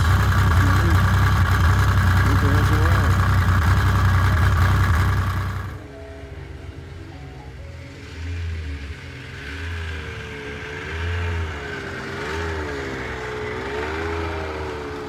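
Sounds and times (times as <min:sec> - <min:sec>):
snowmobile engine revving: 0:00.0 - 0:05.8, 0:08.8 - 0:15.0.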